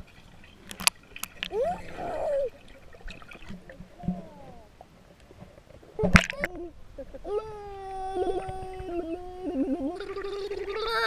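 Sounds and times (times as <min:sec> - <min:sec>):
underwater bubbles gurgling: 0:00.0 - 0:05.1, 0:07.9 - 0:11.0.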